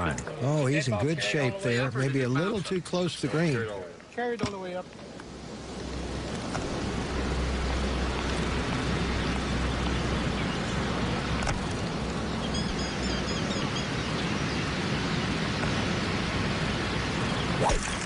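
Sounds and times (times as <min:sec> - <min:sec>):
bird chirping: 0:12.2 - 0:16.0.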